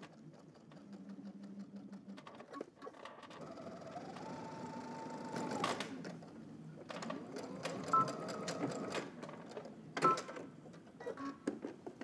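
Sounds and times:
sewing machine stitching: 0:00.0 - 0:06.3, 0:06.9 - 0:09.6.

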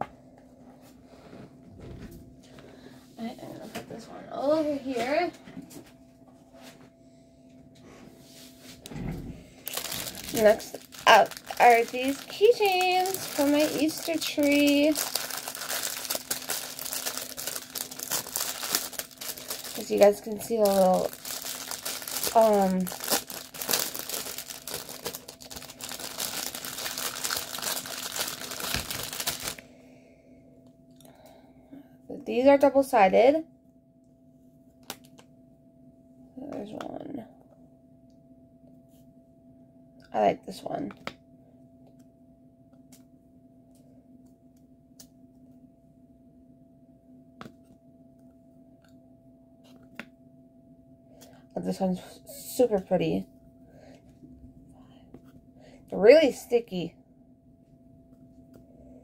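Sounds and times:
steady low hum: 0:00.0 - 0:59.0
plastic bag crinkling: 0:09.6 - 0:29.6.

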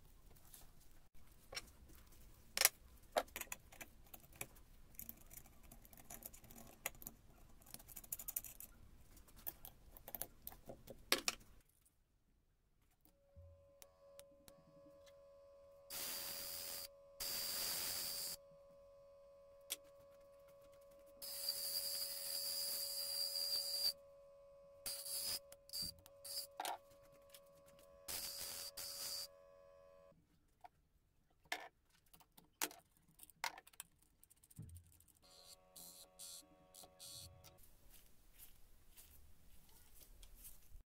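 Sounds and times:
electric motor hum: 0:13.6 - 0:19.7, 0:24.6 - 0:26.5, 0:27.7 - 0:30.1, 0:35.3 - 0:37.5.

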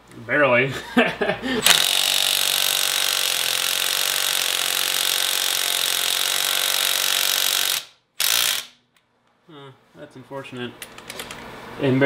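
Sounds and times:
impact wrench hammering: 0:01.6 - 0:08.8.

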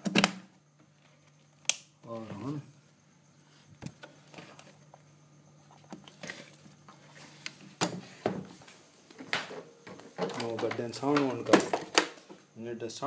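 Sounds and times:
handling knocks and clicks: 0:09.1 - 0:12.4.

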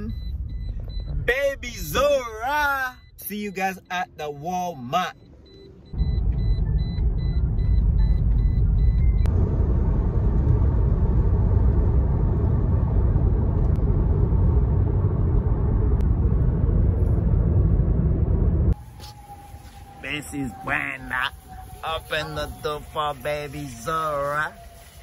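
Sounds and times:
faint rapid beeping: 0:00.0 - 0:09.3
road and wind noise inside car: 0:00.0 - 0:25.0.

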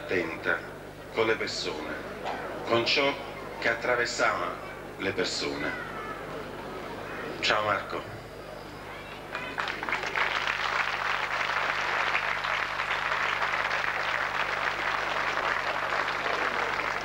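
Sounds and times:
audience applauding: 0:09.3 - 0:17.0.

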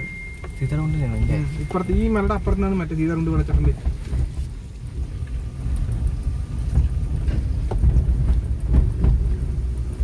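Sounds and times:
car rumbling on dirt road: 0:00.0 - 0:10.0.

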